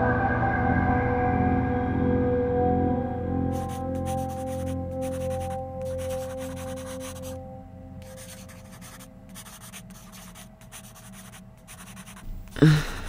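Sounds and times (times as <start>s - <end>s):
held musical drone: 0.0s - 9.3s
pen scratching on paper: 3.5s - 7.4s, 8.0s - 12.4s.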